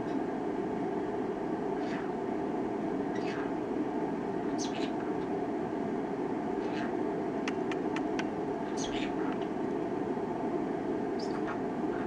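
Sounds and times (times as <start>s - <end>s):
steady background hum: 0.0s - 12.0s
parrot chirping: 3.1s - 3.5s, 4.5s - 5.0s, 7.5s - 9.4s, 11.2s - 12.0s
parrot clicks: 7.4s - 8.3s.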